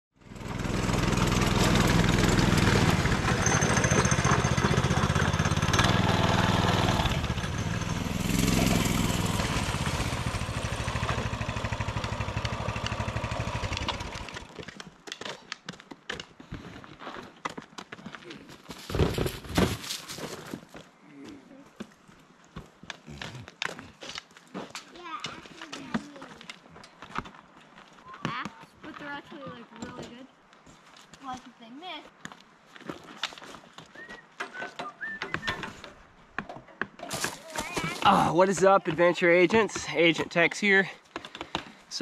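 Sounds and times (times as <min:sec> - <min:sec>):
small engines running: 0:00.2 - 0:14.6
footsteps on gravel: 0:14.4 - 0:34.2, 0:37.0 - 0:40.0.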